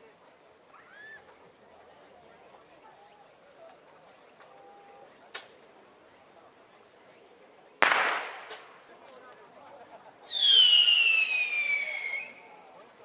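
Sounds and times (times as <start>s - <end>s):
firecracker pops: 5.3s - 5.7s, 7.8s - 9.4s
firecracker bang with crackle: 7.8s - 9.0s.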